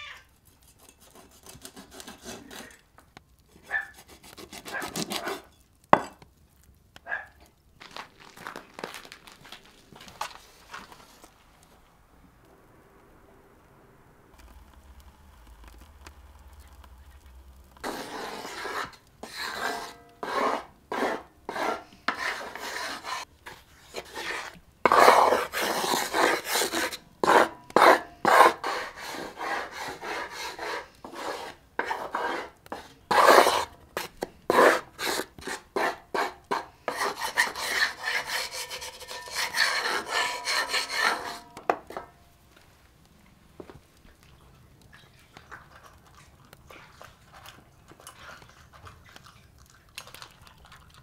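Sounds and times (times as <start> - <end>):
wooden spoon scraping metal pan: 0.6 - 2.8, 3.7 - 6.2, 17.8 - 42.2.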